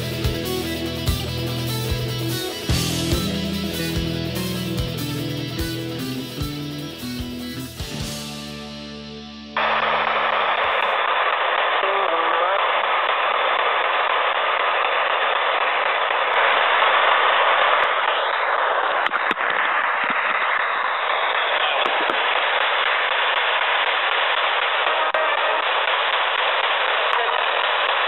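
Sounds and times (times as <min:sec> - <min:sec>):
radio static hiss: 0:09.6 - 0:14.5, 0:15.9 - 0:22.7, 0:24.1 - 0:28.0.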